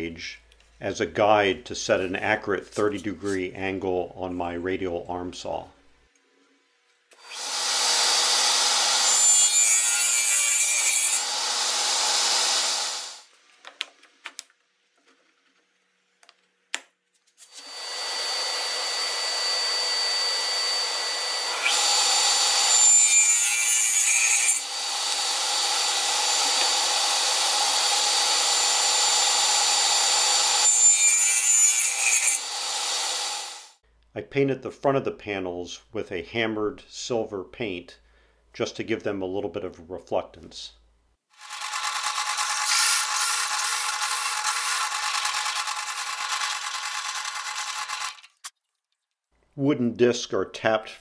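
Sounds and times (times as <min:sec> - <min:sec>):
radial arm saw cutting wood: 0:07.2 - 0:13.2, 0:17.5 - 0:33.8, 0:41.4 - 0:48.2.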